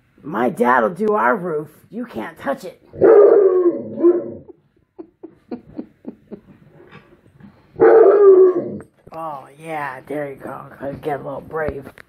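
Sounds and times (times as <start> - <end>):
dog barking howls: 3.0 - 4.4, 7.8 - 8.8.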